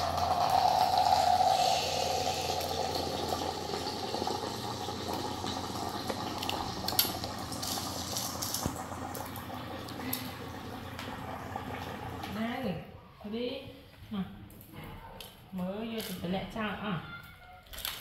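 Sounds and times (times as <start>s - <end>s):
water boiling hiss: 0.0s - 12.4s.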